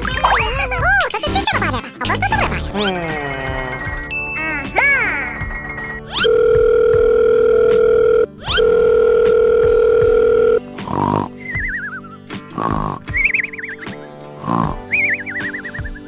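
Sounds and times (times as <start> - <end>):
light children's music: 0.0 - 16.0
telephone ringing tone: 6.2 - 10.7.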